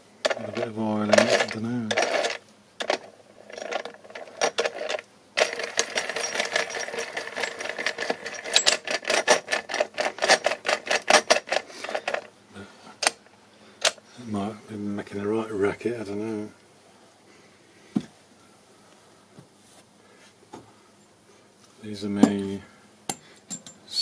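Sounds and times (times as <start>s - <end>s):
metal gear teeth clattering: 5.4s - 12.2s.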